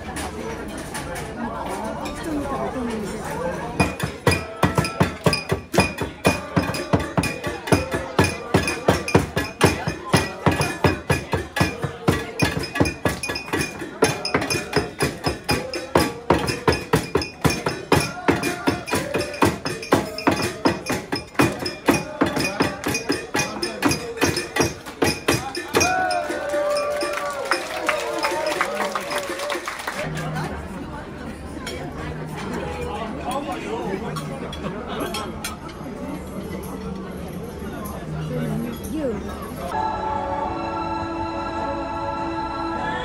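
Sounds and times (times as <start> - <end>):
group singing birthday song: 3.8 - 27.5, 39.7 - 43.0
rhythmic hand claps: 3.8 - 30.2.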